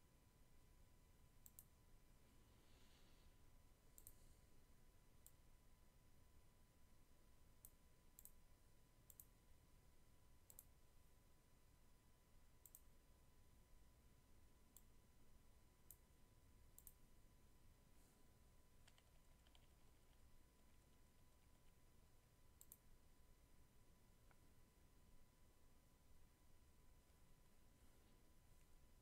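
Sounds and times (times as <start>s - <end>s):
faint steady hum: 0.0s - 29.0s
computer mouse clicks: 1.4s - 1.8s, 3.9s - 4.2s, 5.2s - 5.4s, 7.6s - 8.4s, 9.1s - 9.3s, 10.4s - 10.7s, 12.6s - 12.9s, 14.7s - 14.9s, 15.8s - 16.0s, 16.7s - 17.0s, 18.8s - 21.8s, 22.6s - 22.9s.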